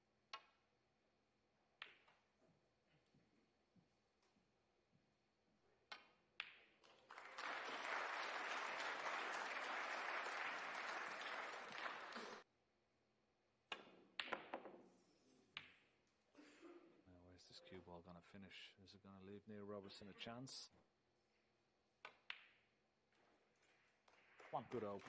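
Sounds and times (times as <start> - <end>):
audience applause: 6.9 - 12.4, 24.4 - 25.0.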